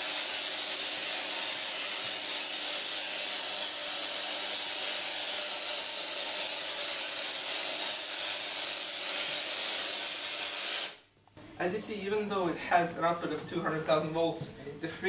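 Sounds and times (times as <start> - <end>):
tesla coil discharge hissing: 0.0 - 11.0.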